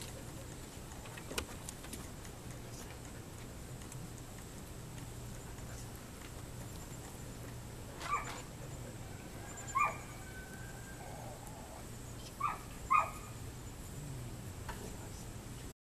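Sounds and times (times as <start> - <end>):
puppies yipping: 6.6 - 13.5.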